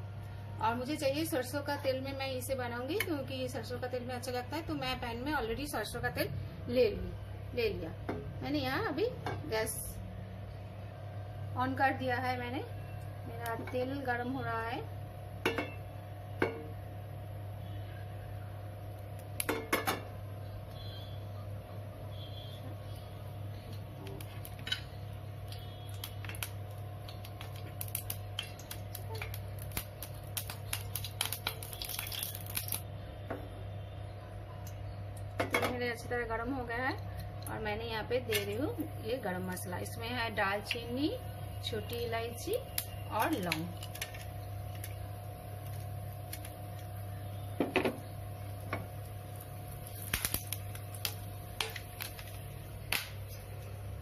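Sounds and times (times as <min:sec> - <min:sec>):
low hum of gas stove: 0:00.0 - 0:54.0
oil crackling in a pan: 0:18.4 - 0:21.2, 0:22.2 - 0:32.9, 0:36.6 - 0:54.0.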